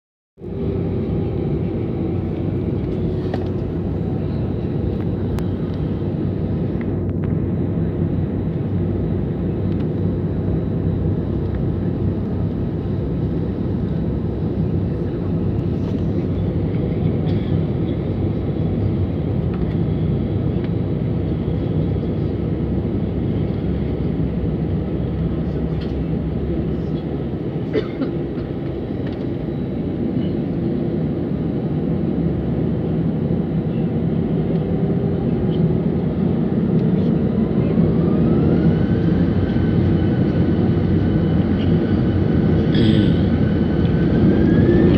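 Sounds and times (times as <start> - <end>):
jet airliner engines rumbling: 0.4 - 44.9.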